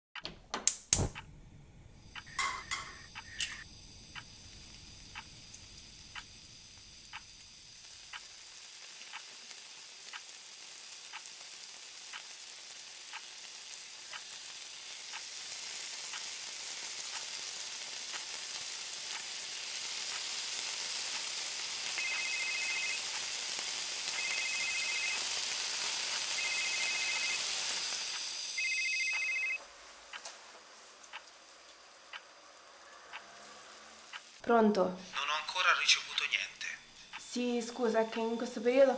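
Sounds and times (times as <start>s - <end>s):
egg sizzling in a pan: 2.0s - 38.9s
clock ticking: 2.2s - 4.3s
phone ringing two-tone: 22.0s - 23.2s, 24.1s - 25.3s, 26.3s - 27.5s, 28.6s - 29.6s.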